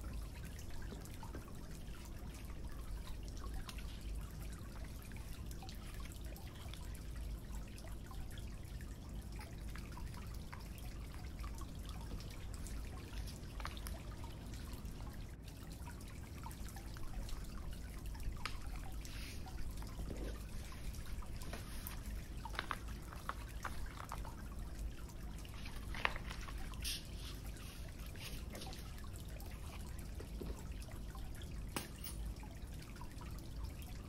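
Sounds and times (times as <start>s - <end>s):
low steady hum: 0.0s - 34.0s
paper rustling: 20.6s - 24.3s, 25.6s - 28.8s.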